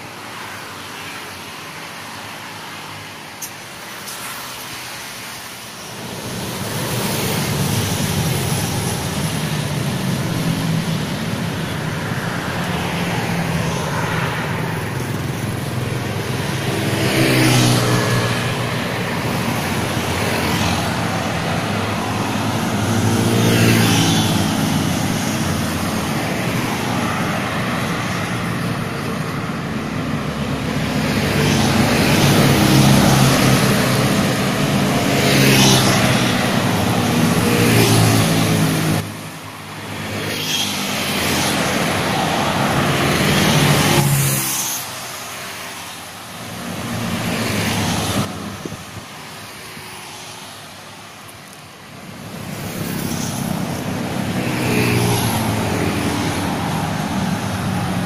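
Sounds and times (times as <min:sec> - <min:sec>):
cars driving past: 0:00.0 - 0:58.0
motorcycles driving past: 0:06.0 - 0:45.9, 0:52.1 - 0:58.0.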